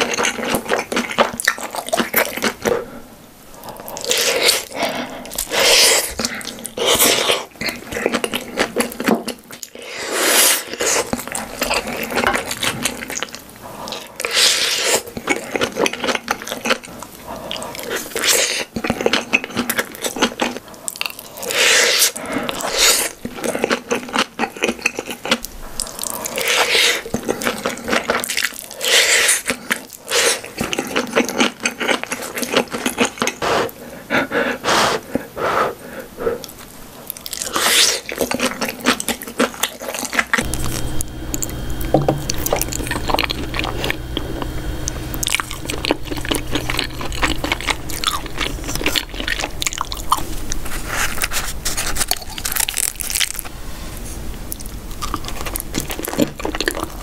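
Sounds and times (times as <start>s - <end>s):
wet chewing and crunching: 0.0s - 2.9s, 3.6s - 33.8s, 36.4s - 53.5s, 54.4s - 57.0s
low steady hum: 40.4s - 57.0s.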